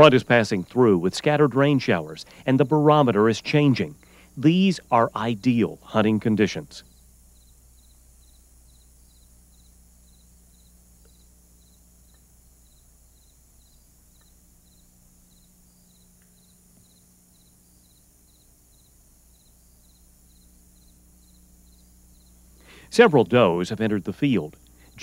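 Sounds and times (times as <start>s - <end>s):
cricket chirping: 0.0s - 25.0s
low electrical hum: 0.0s - 25.0s.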